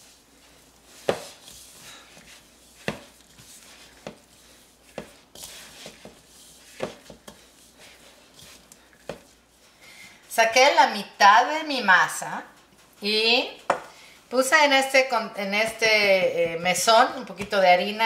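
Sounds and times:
rustle of dough crumbs: 0:00.0 - 0:15.1.

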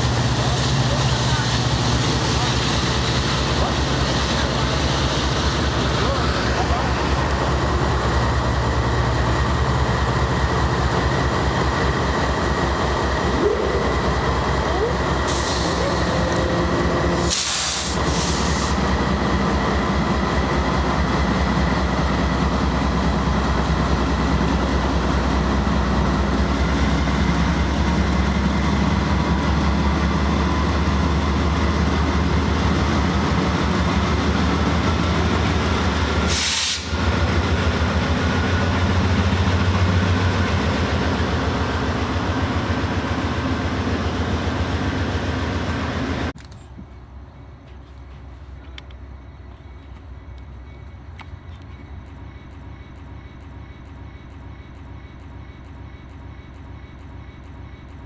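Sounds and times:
diesel locomotive engines droning: 0:00.0 - 0:58.0
train cars rolling past: 0:00.0 - 0:58.0
short hisses: 0:17.2 - 0:18.8, 0:36.3 - 0:37.0.

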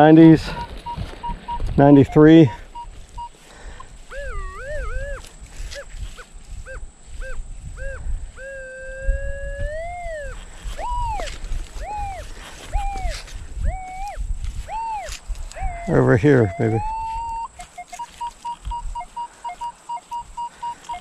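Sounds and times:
metal detector beeps: 0:00.0 - 0:03.4, 0:04.1 - 0:05.3, 0:09.7 - 0:21.0
metal detector steady tone: 0:00.0 - 0:03.4, 0:04.1 - 0:09.0, 0:09.6 - 0:21.0.

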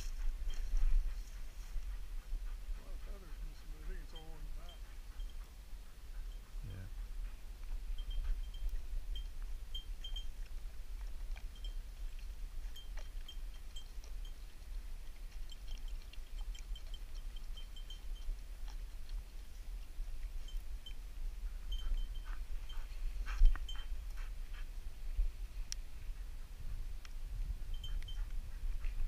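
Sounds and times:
wind rumbling on microphone: 0:00.0 - 0:15.6, 0:17.4 - 0:29.0
faint high jingling ticks: 0:03.1 - 0:10.6, 0:11.3 - 0:19.5, 0:20.2 - 0:24.2, 0:27.0 - 0:29.0.

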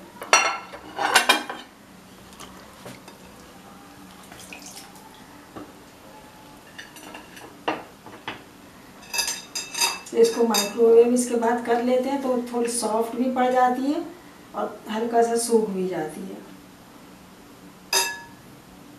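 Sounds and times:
water splashing in a bowl: 0:04.1 - 0:05.2
crockery clinking: 0:06.7 - 0:08.3, 0:09.0 - 0:10.8, 0:17.9 - 0:18.4.

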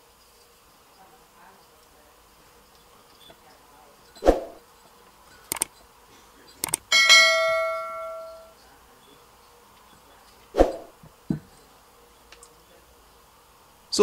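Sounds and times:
mouse clicks: 0:05.5 - 0:05.7, 0:06.6 - 0:06.8
bell ding: 0:06.9 - 0:08.5.

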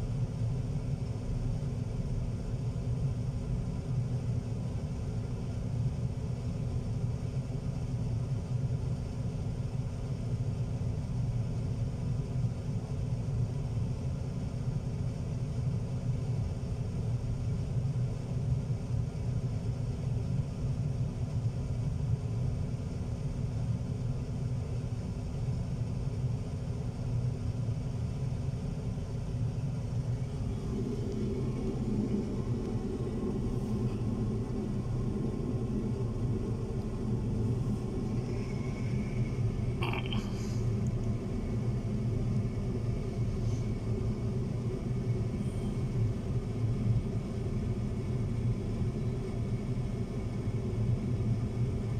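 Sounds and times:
higher drone: 0:30.2 - 0:41.4.

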